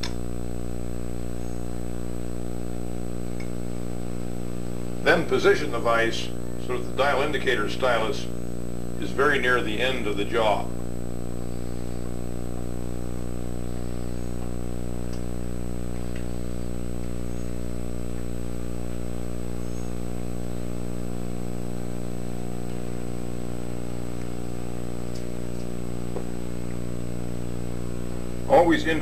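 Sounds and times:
electrical hum: 0.0 - 29.0
faint high whine: 0.0 - 29.0.

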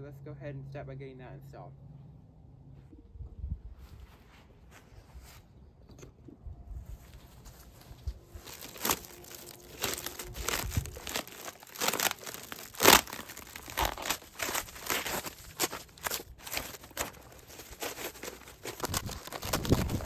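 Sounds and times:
plastic wrap crinkling and tearing: 8.1 - 20.0.

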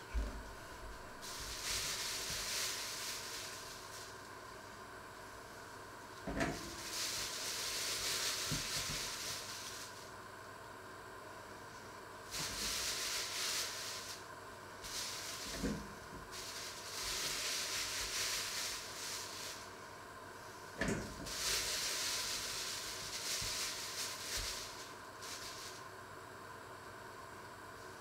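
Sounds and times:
plastic bag crinkling: 1.2 - 4.1, 6.6 - 10.0, 16.3 - 19.7, 21.2 - 25.8.

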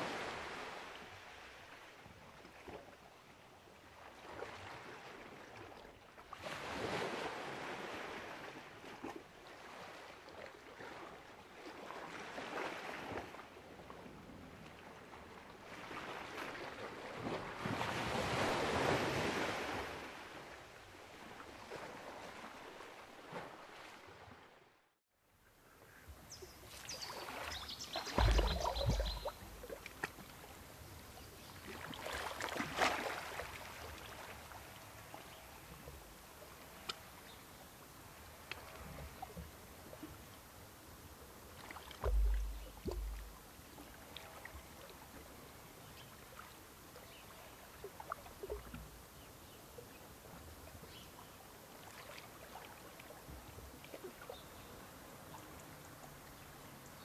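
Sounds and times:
small waves washing onto beach: 0.0 - 24.7, 26.6 - 49.2
low thump: 28.1 - 29.8, 42.0 - 43.4.

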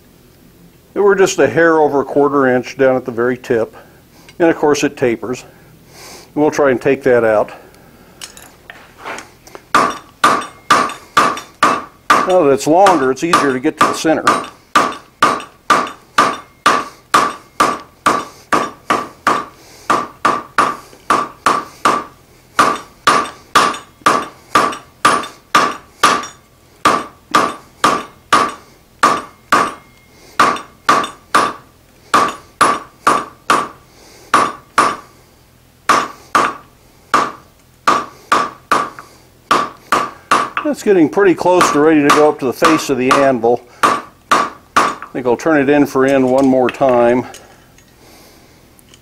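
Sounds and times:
hammer striking steel on anvil: 9.7 - 35.0, 35.9 - 40.8, 41.5 - 45.2, 46.0 - 47.4.

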